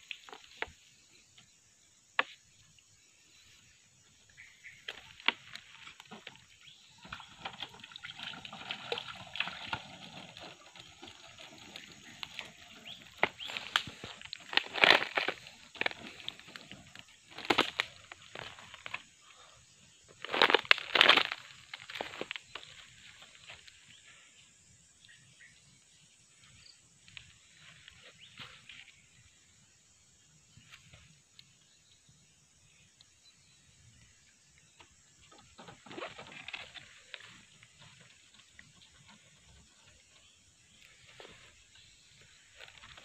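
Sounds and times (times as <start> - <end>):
dry leaves crunching underfoot: 10.3 - 19.0, 20.2 - 23.6
twigs snapping: 12.1 - 19.0, 20.2 - 22.8.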